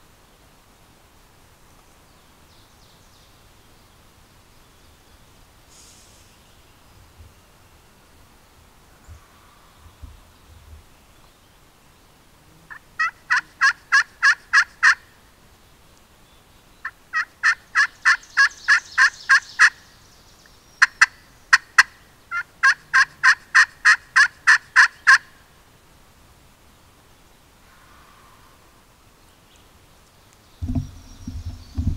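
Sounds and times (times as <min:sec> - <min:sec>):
turkey clucks: 0:12.7 - 0:15.0, 0:16.8 - 0:19.8, 0:20.8 - 0:25.3
turkey yelping: 0:12.7 - 0:15.0, 0:17.1 - 0:19.8, 0:20.8 - 0:25.3.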